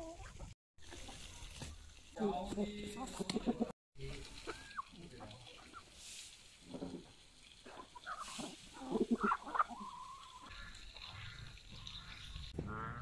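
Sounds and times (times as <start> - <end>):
chickens clucking: 0.0 - 1.7, 2.5 - 13.0
goose honking: 10.4 - 13.0.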